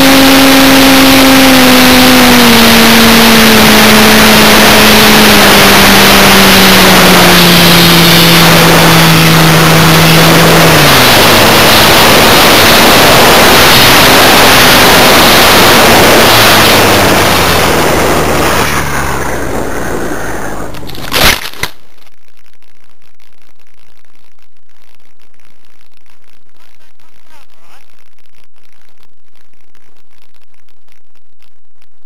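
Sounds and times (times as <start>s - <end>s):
small motor humming: 0.0s - 21.6s
rushing wind noise: 0.0s - 21.7s
loud crack: 20.4s - 22.0s.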